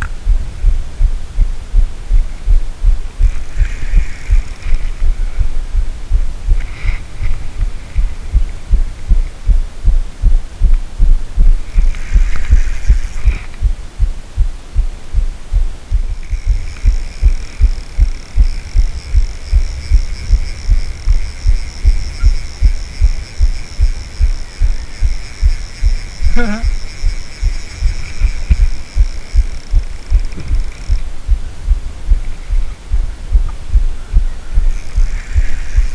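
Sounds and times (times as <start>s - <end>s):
high-pitched whine: 0.0s - 35.9s
muffled rhythmic thumping: 0.0s - 35.9s.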